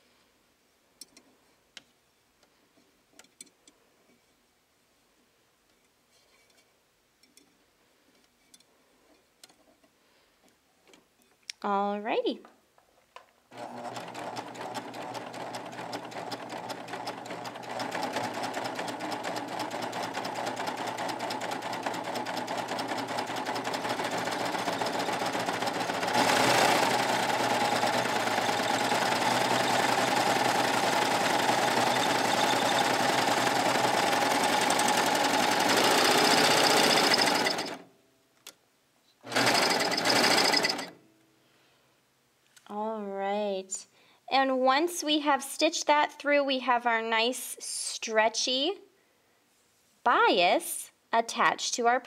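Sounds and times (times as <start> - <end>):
serger sewing machine running: 13.5 - 37.8, 39.3 - 40.9.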